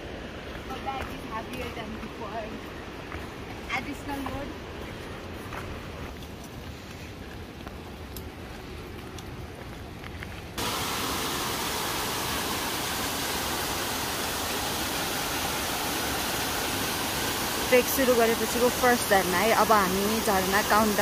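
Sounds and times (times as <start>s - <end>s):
waterfall rushing: 10.6s - 21.0s.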